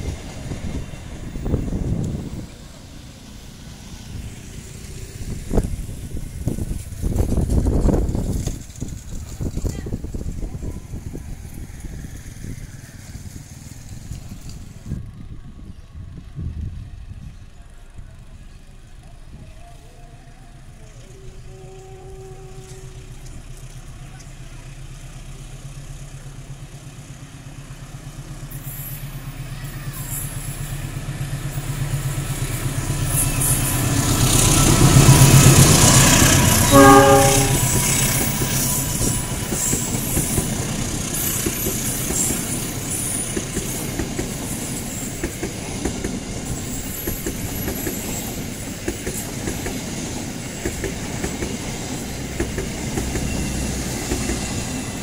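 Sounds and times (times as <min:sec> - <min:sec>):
diesel locomotive passing: 0:00.0 - 0:55.0
train horn blast: 0:21.0 - 0:23.3, 0:36.4 - 0:38.1
wheels clacking over rail joints: 0:28.5 - 0:55.0.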